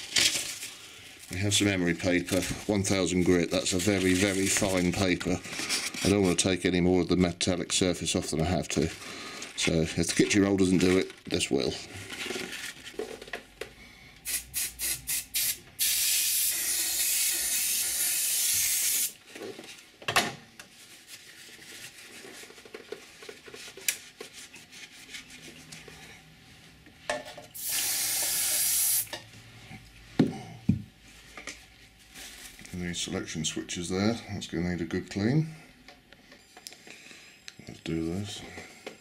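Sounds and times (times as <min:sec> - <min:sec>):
aerosol spray hissing: 0:14.3 - 0:19.2, 0:27.6 - 0:29.1.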